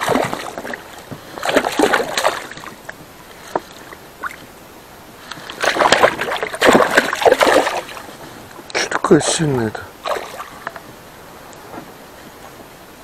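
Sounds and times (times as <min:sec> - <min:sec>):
fish thrashing and splashing: 0:00.0 - 0:04.5, 0:05.2 - 0:09.2, 0:10.0 - 0:10.8.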